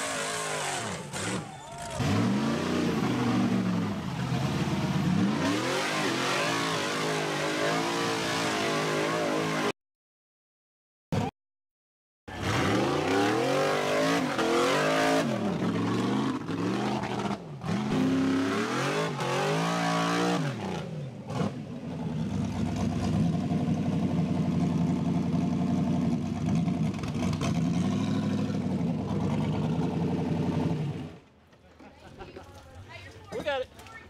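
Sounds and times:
buggy engine revving: 0.0s - 9.7s, 12.3s - 31.2s.

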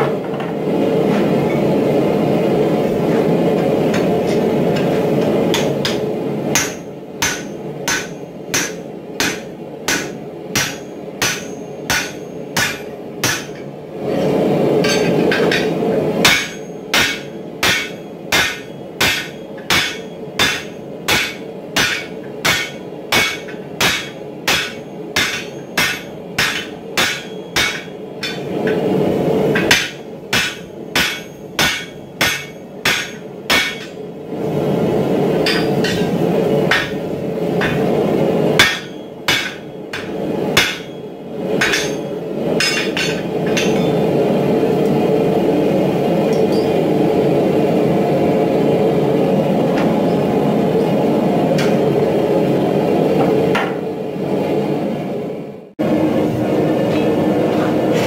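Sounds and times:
hammer ringing on hot steel: 5.5s - 13.7s, 14.8s - 28.9s, 29.5s - 34.0s, 35.4s - 38.0s, 38.6s - 44.2s, 46.3s - 46.8s.

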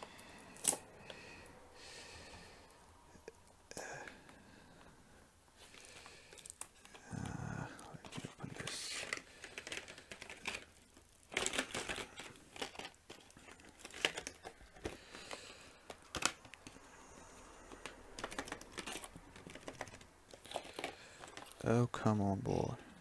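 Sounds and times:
paper packaging crinkling: 5.6s - 16.9s, 17.6s - 21.8s.

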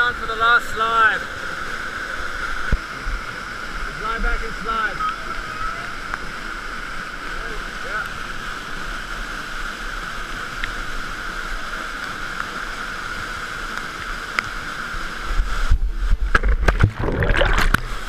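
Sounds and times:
knocks and buffeting on microphone: 15.7s - 18.0s
waterfall rushing: 16.2s - 18.0s.

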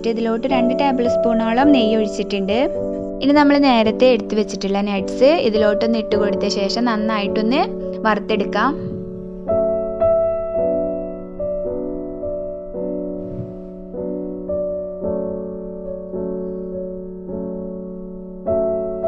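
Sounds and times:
slow piano chords: 0.0s - 19.0s.

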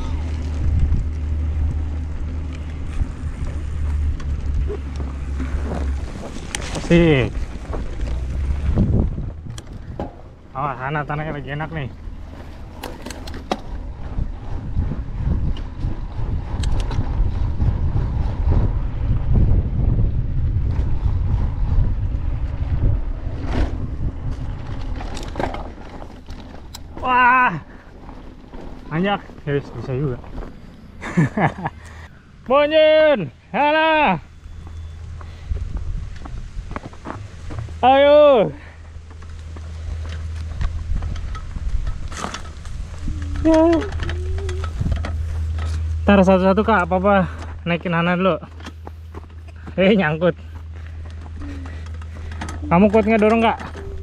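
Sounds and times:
wind rumbling on microphone: 0.0s - 32.5s, 33.3s - 54.0s
bike rolling on dirt trail: 0.0s - 54.0s.

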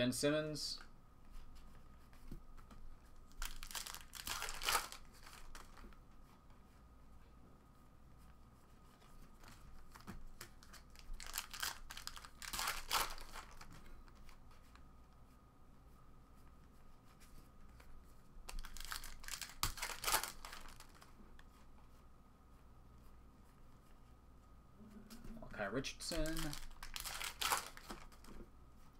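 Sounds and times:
cards rustling and sliding: 1.6s - 6.0s, 26.1s - 28.5s.

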